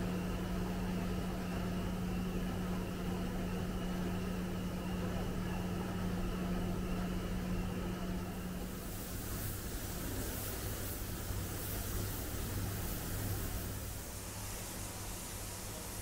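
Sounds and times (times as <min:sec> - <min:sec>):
machinery hiss: 0:08.6 - 0:16.0.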